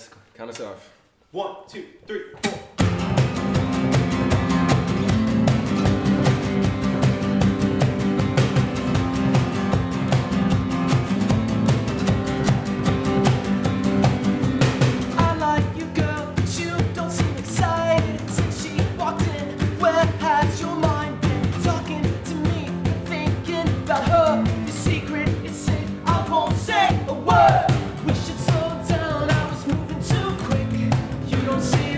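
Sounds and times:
cajon beat: 2.4s - 31.9s
strummed acoustic guitars: 2.7s - 31.9s
man singing: 15.1s - 31.9s.

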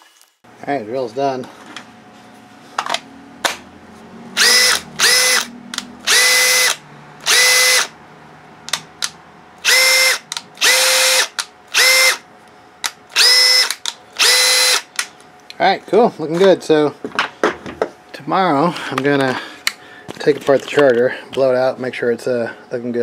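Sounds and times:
cordless drill whining: 4.4s - 7.9s, 9.6s - 12.2s, 13.1s - 14.9s.

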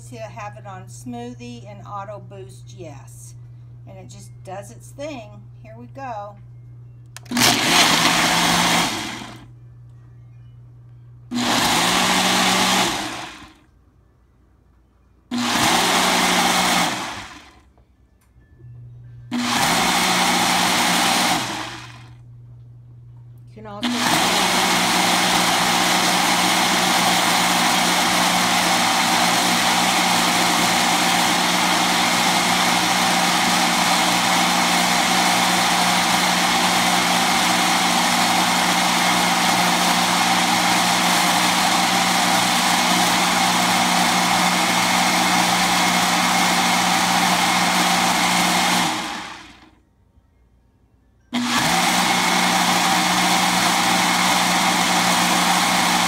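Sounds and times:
blender motor running: 7.2s - 9.5s, 11.3s - 13.6s, 15.3s - 17.6s, 19.3s - 22.2s, 23.8s - 49.8s, 51.4s - 56.0s.

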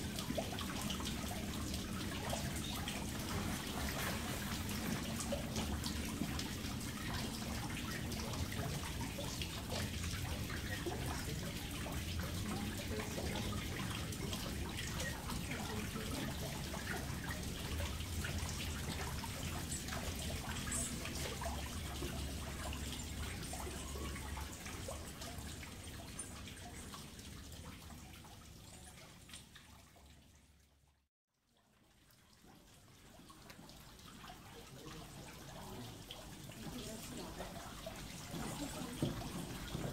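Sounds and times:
water trickling into pond: 0.0s - 39.9s.

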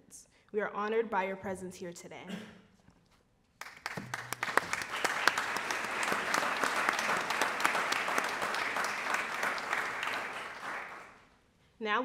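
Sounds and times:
audience applauding: 3.6s - 11.2s.

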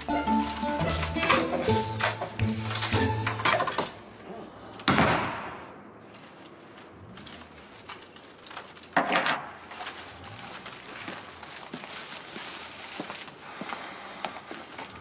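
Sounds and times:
faint footsteps: 5.4s - 8.9s, 9.6s - 15.0s
rustling: 9.6s - 13.5s.

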